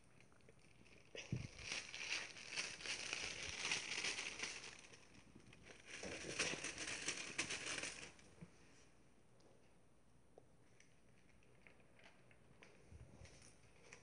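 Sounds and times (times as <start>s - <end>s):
plastic bag crinkling: 0.0s - 8.4s.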